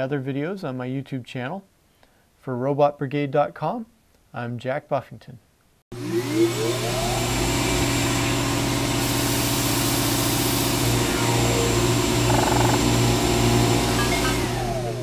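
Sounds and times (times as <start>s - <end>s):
machine motor humming: 6.0s - 15.0s.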